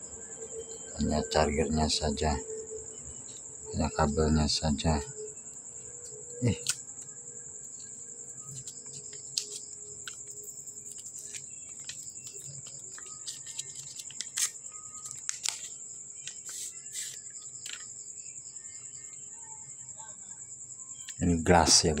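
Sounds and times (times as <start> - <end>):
crickets chirring: 0.0 - 22.0
packaging crinkling: 10.8 - 17.8.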